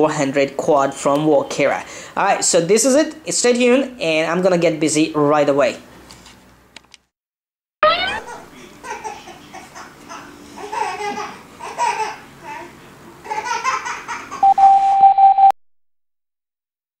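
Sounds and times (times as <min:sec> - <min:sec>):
baby laughing and babbling: 0:07.9 - 0:14.4.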